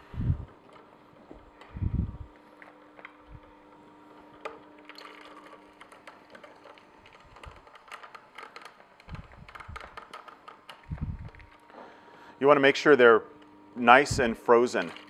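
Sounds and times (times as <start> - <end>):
frozen berries clicking and crackling: 4.6 - 11.7.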